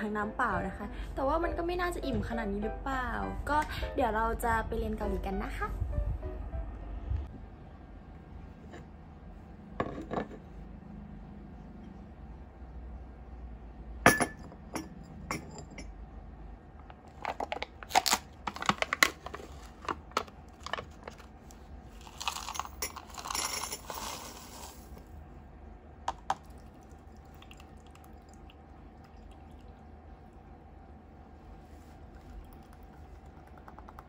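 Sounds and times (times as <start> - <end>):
cup clinking on saucer: 14.1 - 15.9
dry pieces rattling into cup: 22.0 - 24.9.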